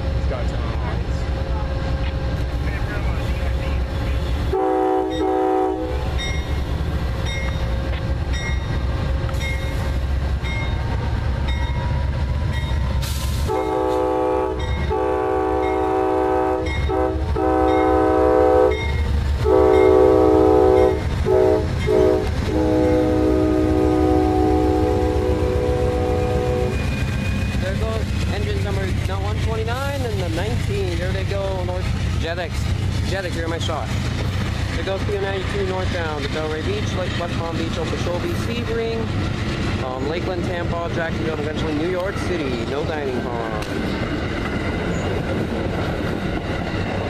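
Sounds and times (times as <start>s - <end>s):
diesel engine and wheels rumbling: 0.0s - 47.0s
train air horn blasts: 4.5s - 6.1s, 13.2s - 18.8s, 19.4s - 26.8s.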